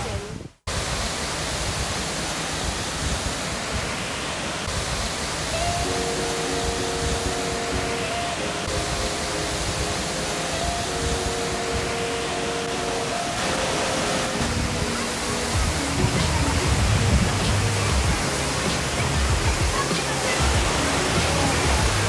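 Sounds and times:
waterfall roar: 0.0 - 22.0
held musical notes: 5.5 - 22.0.

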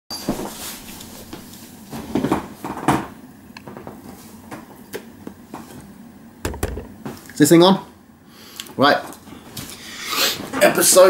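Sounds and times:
close-up knocks and rustles: 6.5 - 7.2.

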